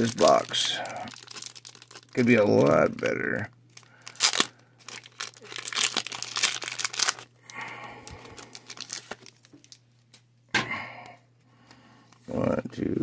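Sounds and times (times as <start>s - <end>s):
foil wrapper crinkling and tearing: 0.0s - 10.1s.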